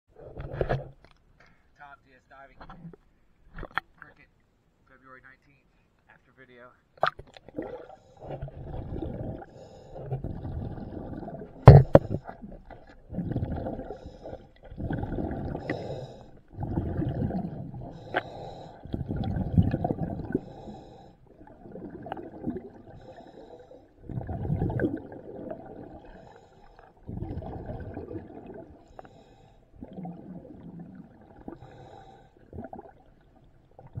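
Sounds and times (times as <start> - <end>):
underwater exhaled bubbles: 7.1 - 34.0.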